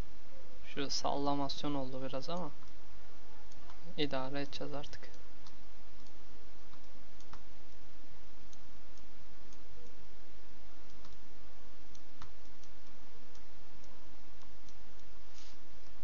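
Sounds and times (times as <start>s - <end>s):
low background hum: 0.0s - 16.0s
computer mouse clicking: 5.1s - 7.5s, 10.9s - 11.2s.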